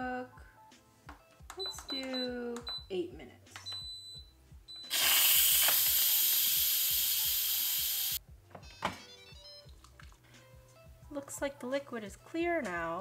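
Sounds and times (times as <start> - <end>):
pressure cooker steam hissing: 4.9 - 8.2.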